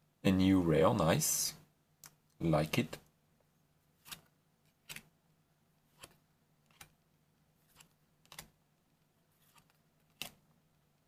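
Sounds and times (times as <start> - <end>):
trading cards clicking and flicking: 7.7 - 8.5, 9.4 - 10.4.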